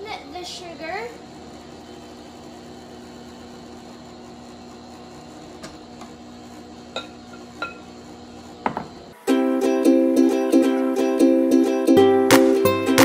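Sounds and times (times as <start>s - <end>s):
stand mixer running: 0.8s - 9.5s.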